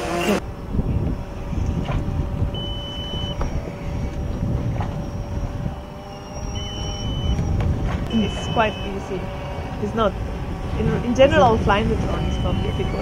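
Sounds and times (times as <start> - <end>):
drone propeller whine: 0.0 - 13.0
wind rumble on microphone: 0.0 - 13.0
short high beep: 2.6 - 3.4, 8.1 - 9.0.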